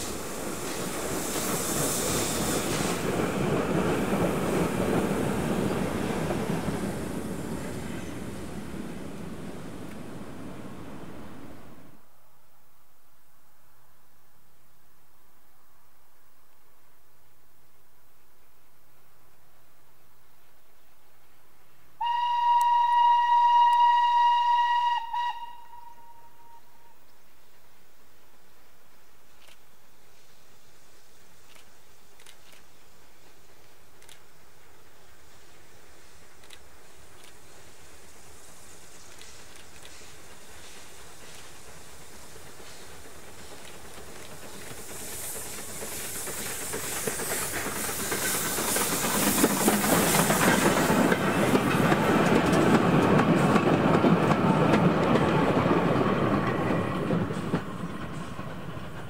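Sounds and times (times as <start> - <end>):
steam hiss: 0.0 - 12.0, 22.0 - 59.0
train wheels rumbling on rails: 0.0 - 12.0, 28.3 - 59.0
steam locomotive whistle: 22.0 - 27.1.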